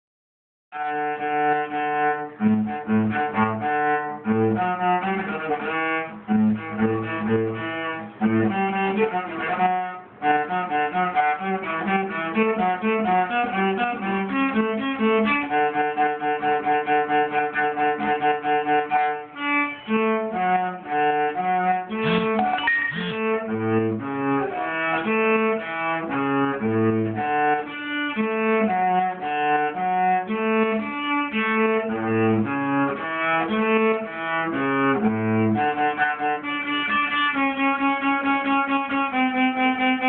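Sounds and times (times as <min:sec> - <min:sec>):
solo cello melody: 0:00.7 - 0:40.0.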